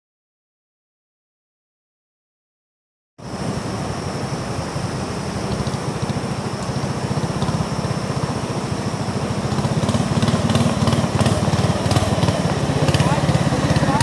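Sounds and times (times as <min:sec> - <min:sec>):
boat engine throbbing: 0:03.2 - 0:14.0.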